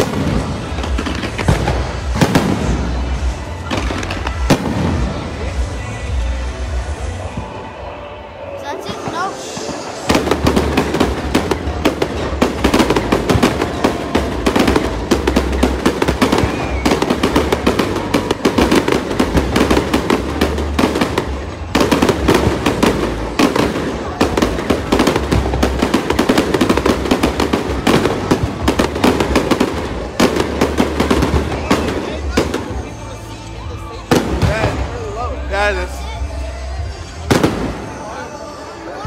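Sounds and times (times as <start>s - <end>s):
fireworks bursting: 0.0s - 7.8s, 8.8s - 38.8s.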